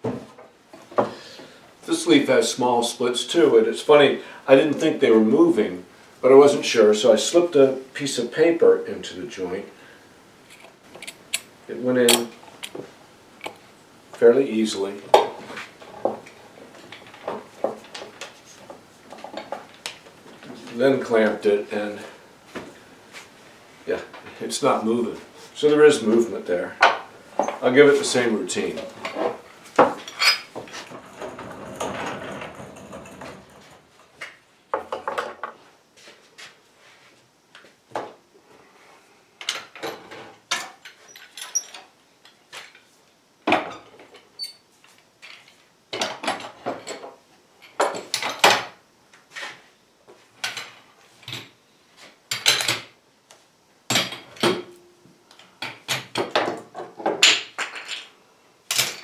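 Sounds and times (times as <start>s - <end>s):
wood scraping: 27.3s - 34.2s.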